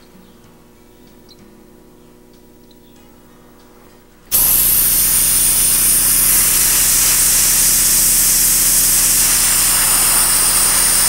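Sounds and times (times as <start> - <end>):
air blower rushing hiss: 4.3 - 11.0.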